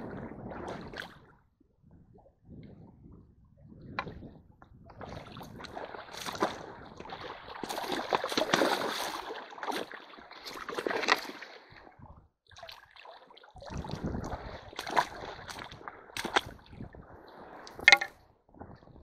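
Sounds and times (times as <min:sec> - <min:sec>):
stream water splashing: 0:05.0 - 0:11.8, 0:12.6 - 0:16.6.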